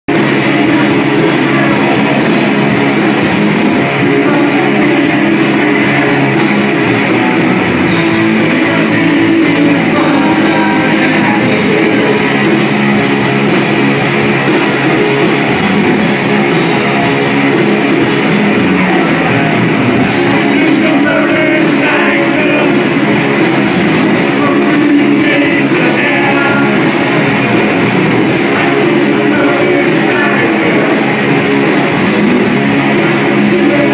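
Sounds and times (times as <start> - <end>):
drums: 0.0 - 33.9
electric guitars: 0.0 - 33.9
person singing: 0.1 - 12.8, 18.7 - 27.4, 28.3 - 33.9.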